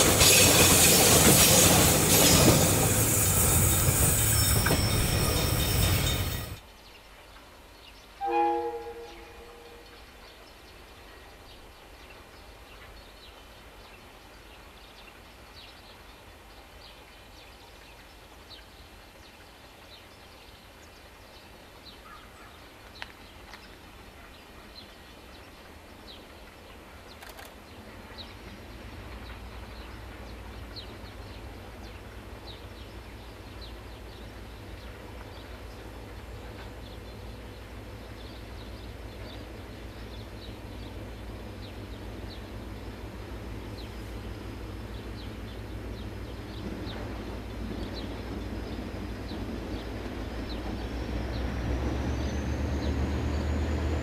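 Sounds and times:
locomotive rumble: 0.0s - 6.6s, 27.7s - 54.0s.

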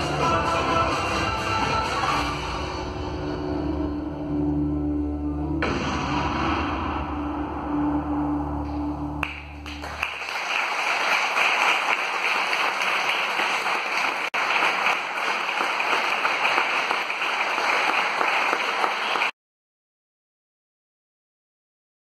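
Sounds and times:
low music drone: 2.6s - 9.8s
audience applause: 9.2s - 19.3s.

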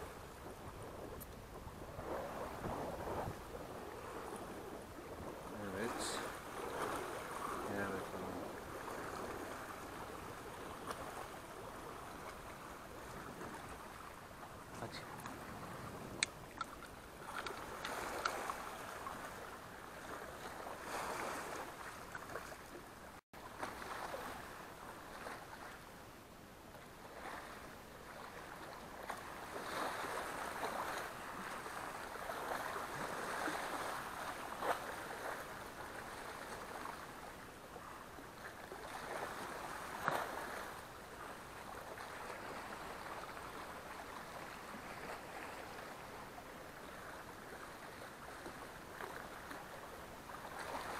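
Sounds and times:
waves lapping against rocks: 0.0s - 25.8s, 26.7s - 50.9s.

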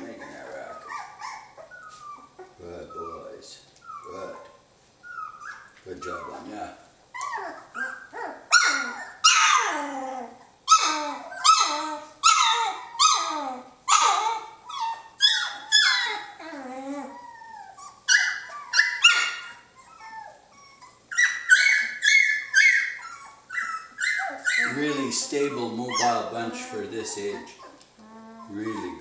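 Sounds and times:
puppies whining yelps: 0.0s - 29.0s.

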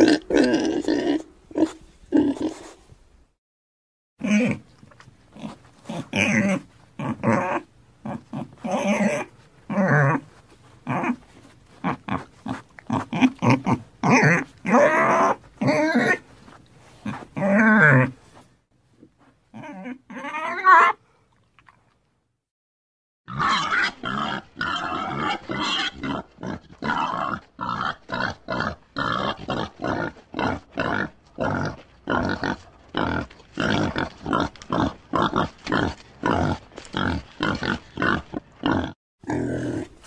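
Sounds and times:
pig grunting: 0.0s - 2.8s, 4.2s - 4.6s, 5.4s - 11.2s, 11.8s - 16.2s, 23.3s - 40.0s.

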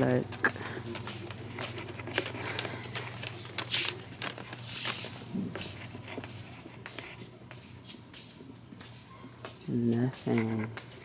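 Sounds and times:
footsteps: 0.0s - 11.0s
steady low hum: 0.0s - 11.0s
rustling: 0.8s - 7.3s.

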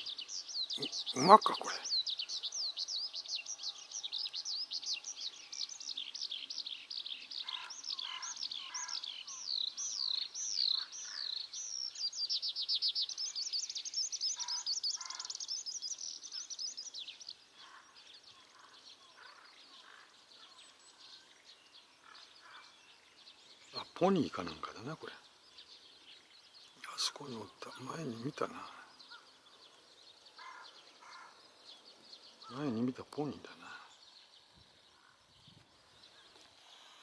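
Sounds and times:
skylark warbling song: 0.0s - 3.1s.

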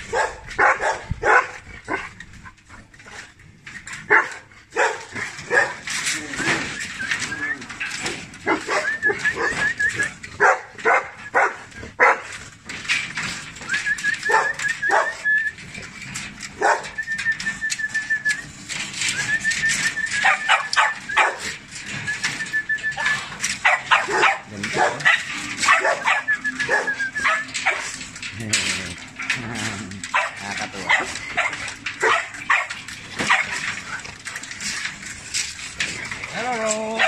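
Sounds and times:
dogs barking: 0.0s - 3.0s, 4.0s - 6.0s, 8.4s - 12.5s, 14.2s - 15.3s, 16.5s - 17.0s, 19.7s - 21.9s, 22.9s - 34.8s.

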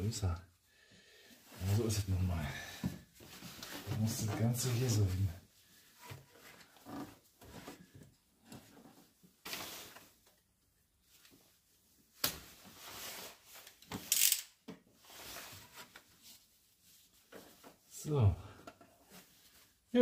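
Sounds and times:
rustling and scraping: 2.8s - 10.3s, 12.4s - 18.1s, 18.7s - 19.9s.

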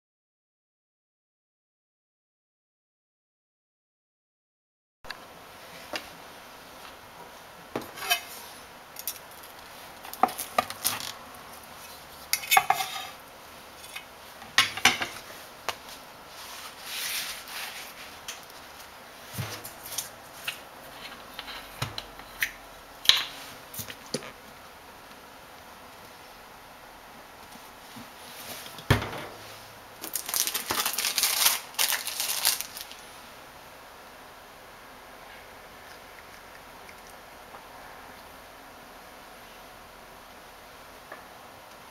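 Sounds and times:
rustling: 27.5s - 33.1s.

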